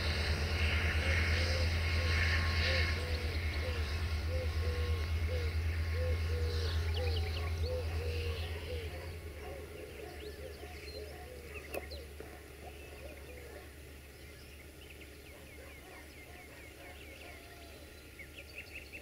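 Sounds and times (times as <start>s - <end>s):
locomotive engine hum: 0.0s - 19.0s
small birds chirping: 1.2s - 19.0s.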